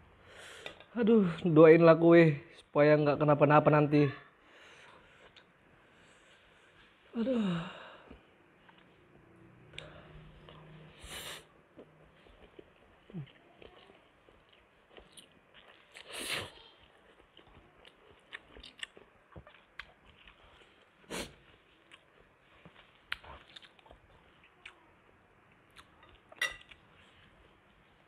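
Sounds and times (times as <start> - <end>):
chewing food: 11.6 - 27.8.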